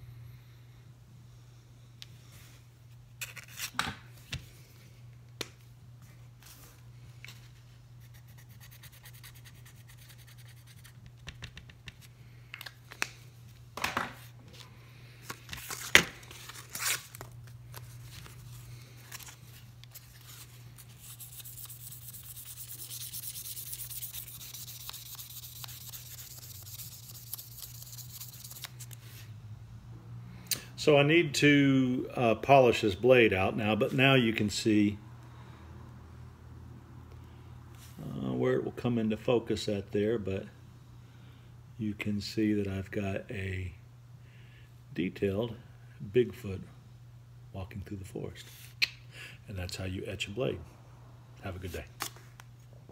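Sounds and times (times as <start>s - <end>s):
sandpaper rubbing on blade: 8.0s - 11.0s, 20.4s - 29.0s.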